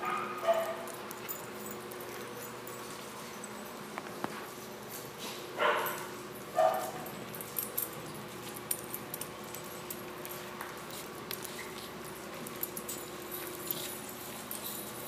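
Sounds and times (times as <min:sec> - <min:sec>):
dog barking: 0:00.0 - 0:00.9, 0:05.6 - 0:07.1.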